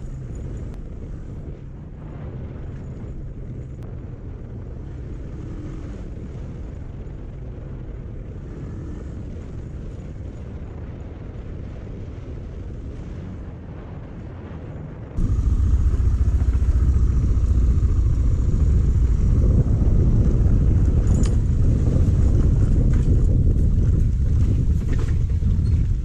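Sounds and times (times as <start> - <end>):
motorcycle engine rumbling: 15.2 - 26.0.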